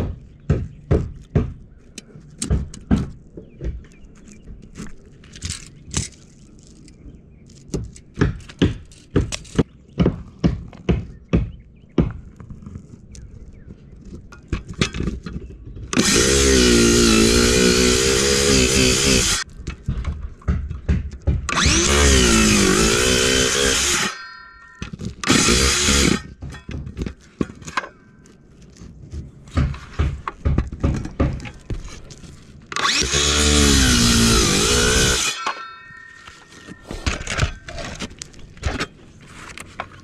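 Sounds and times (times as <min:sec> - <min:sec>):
circular saw cutting roof: 0:15.9 - 0:40.0.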